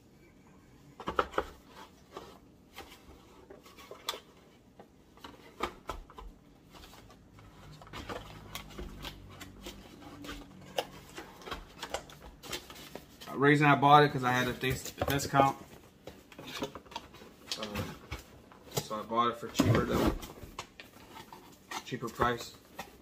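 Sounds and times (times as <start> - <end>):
plastic handling clicks and knocks: 14.6 - 23.0.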